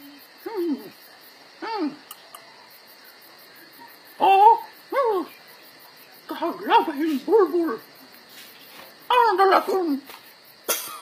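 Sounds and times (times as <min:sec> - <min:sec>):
man making wordless vocal sounds: 0:00.0 - 0:01.0, 0:01.6 - 0:02.2, 0:04.2 - 0:05.3, 0:06.3 - 0:07.9.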